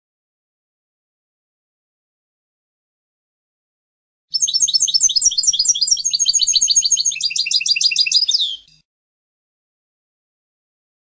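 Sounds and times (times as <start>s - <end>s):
finch twittering song: 4.3s - 8.8s.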